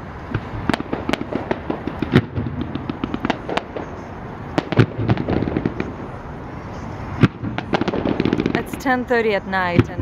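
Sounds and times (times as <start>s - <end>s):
fireworks bangs and pops: 0.3s - 6.2s, 7.2s - 9.0s.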